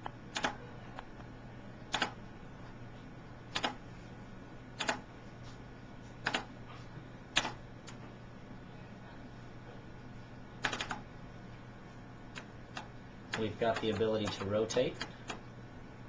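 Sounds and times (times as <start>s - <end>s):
faint low hum: 0.0s - 16.0s
computer mouse clicks: 0.4s - 0.6s.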